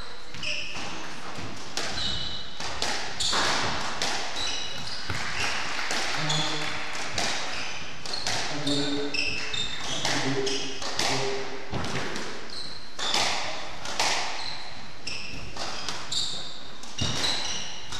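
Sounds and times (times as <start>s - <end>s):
shoes squeaking on wooden floor: 0.2s - 2.6s, 3.2s - 5.5s, 6.1s - 6.8s, 7.4s - 13.3s, 14.2s - 17.9s
squash ball cracking off rackets: 0.7s - 14.5s.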